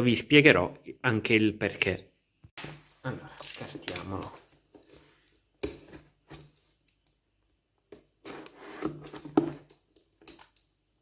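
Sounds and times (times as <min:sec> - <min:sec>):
knife cutting cardboard: 0:08.2 - 0:09.7.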